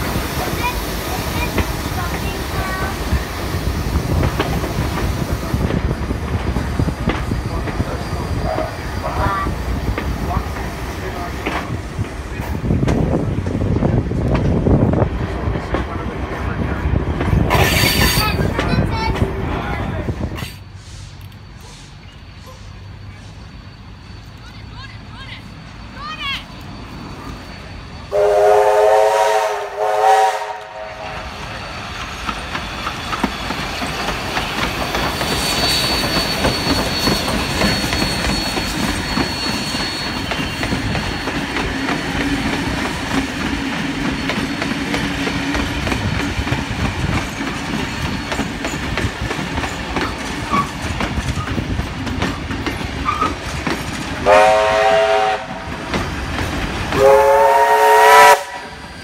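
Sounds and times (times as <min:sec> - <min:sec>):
train wheels clattering over rail joints: 0:00.0 - 0:19.4, 0:31.8 - 0:54.3, 0:55.6 - 0:57.1
steam locomotive chime whistle: 0:20.7 - 0:42.0, 0:54.2 - 0:55.6, 0:57.0 - 0:59.0.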